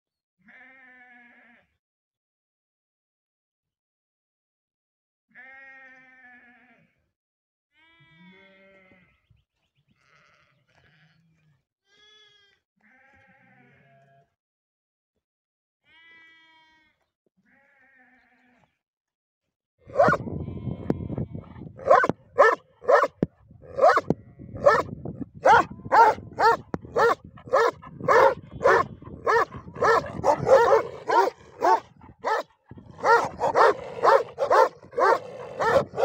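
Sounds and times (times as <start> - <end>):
large dogs barking: 19.9 - 20.3, 21.7 - 36.0.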